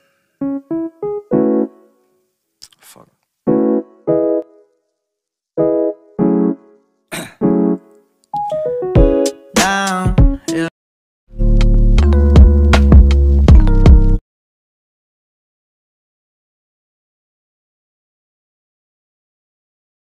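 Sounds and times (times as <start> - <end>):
electric piano jingle: 0.4 - 1.9, 3.5 - 4.4, 8.4 - 9.5, 12.0 - 12.8.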